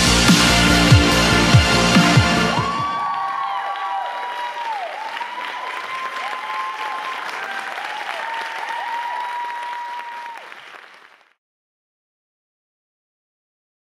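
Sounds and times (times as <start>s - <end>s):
audience applauding and cheering: 0.3s - 11.4s.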